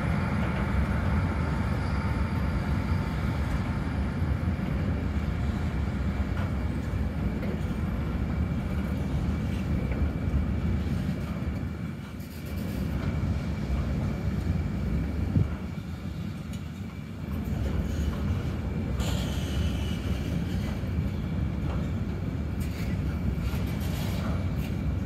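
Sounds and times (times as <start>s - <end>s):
train wheels rumbling on rail: 0.0s - 25.0s.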